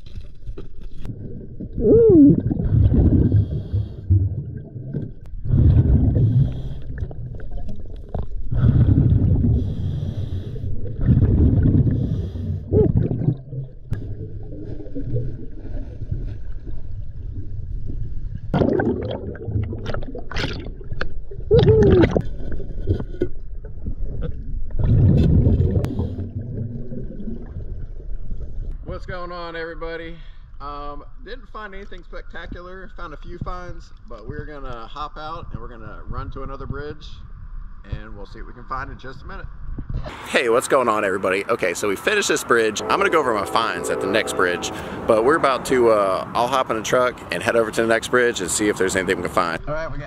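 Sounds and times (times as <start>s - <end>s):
underwater breath bubbling: 1.1s - 16.8s, 24.0s - 28.4s.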